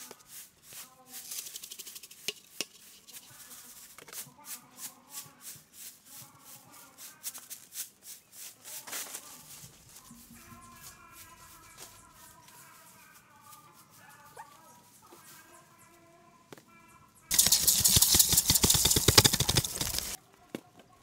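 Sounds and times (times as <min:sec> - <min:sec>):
scraping strokes: 0:00.0 - 0:13.0, 0:17.3 - 0:20.2
sharp clicks: 0:17.3 - 0:20.2.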